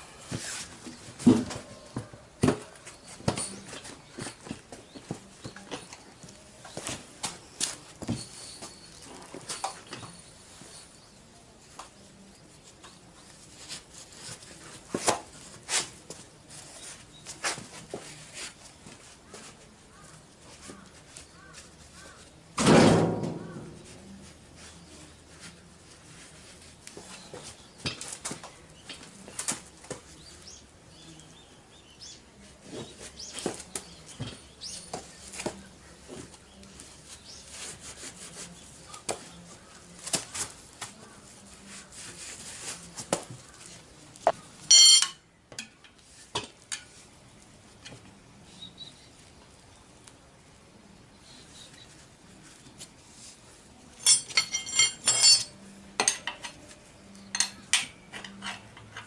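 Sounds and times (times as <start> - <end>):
loud ringing metal clang: 44.7 - 45.2
metal tools clinking on concrete: 44.7 - 45.8, 54.0 - 56.7.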